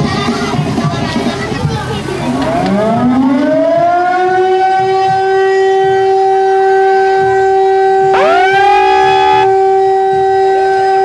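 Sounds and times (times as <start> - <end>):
second siren sweeping up: 2.5 - 10.0
siren steady tone: 2.5 - 11.0.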